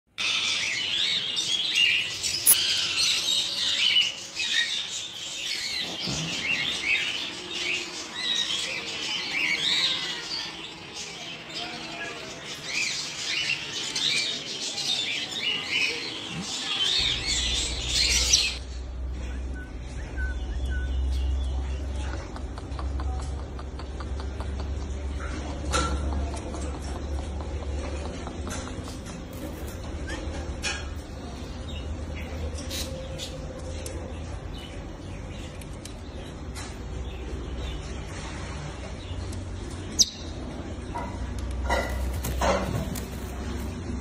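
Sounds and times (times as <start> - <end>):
parrot chicks chirping: 0.2 - 22.3.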